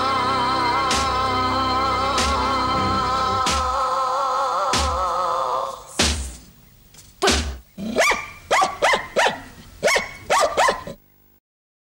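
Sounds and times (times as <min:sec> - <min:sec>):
held music chord: 0:00.0 - 0:04.1
dog barking: 0:07.9 - 0:11.0.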